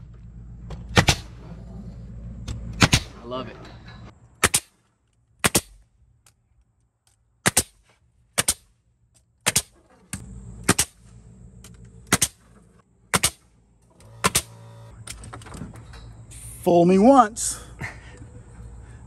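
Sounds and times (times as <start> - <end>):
nail gun shots: 0.9 - 1.4, 2.8 - 3.2, 4.4 - 4.8, 5.4 - 5.8, 7.4 - 7.8, 8.4 - 8.7, 9.4 - 9.8, 10.6 - 11.0, 12.1 - 12.4, 13.1 - 14.7.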